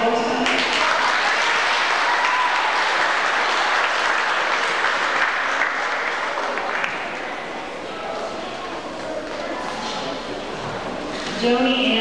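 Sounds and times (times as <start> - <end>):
audience applauding: 0.4 - 7.5.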